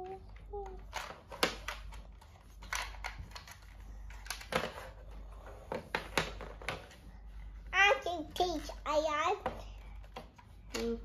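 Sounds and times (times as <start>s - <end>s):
plastic toy parts clicking: 0.0s - 4.8s.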